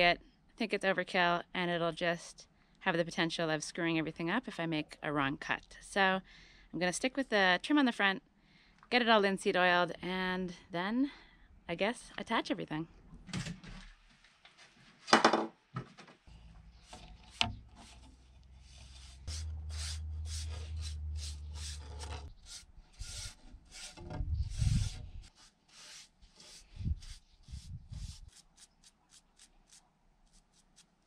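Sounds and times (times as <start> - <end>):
paintbrush scraping on wood: 16.7 - 31.0.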